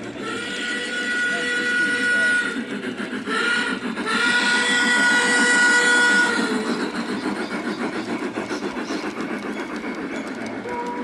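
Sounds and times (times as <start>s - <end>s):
locomotive running rhythmically: 0.0s - 11.0s
steam locomotive whistle: 0.2s - 6.7s, 10.6s - 11.0s.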